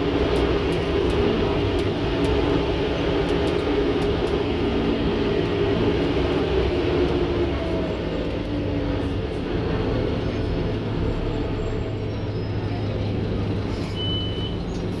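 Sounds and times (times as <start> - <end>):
bus engine drone: 0.0 - 15.0
brief high beep: 13.9 - 14.6.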